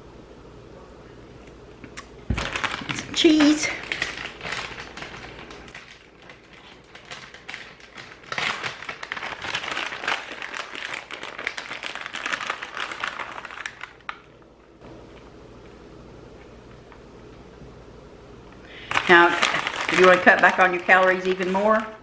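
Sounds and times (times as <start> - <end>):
plastic bag crinkling: 2.3 - 14.4, 18.7 - 22.0.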